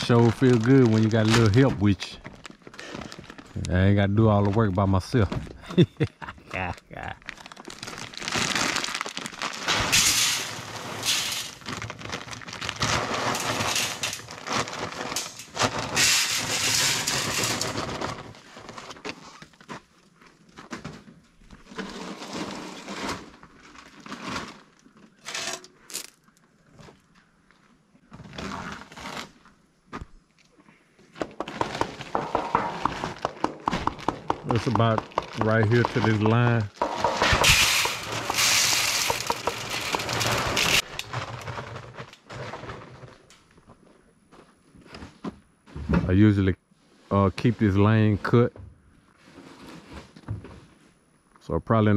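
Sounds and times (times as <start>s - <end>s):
corn pouring into feeder: 8.2s - 18.2s, 34.4s - 41.8s.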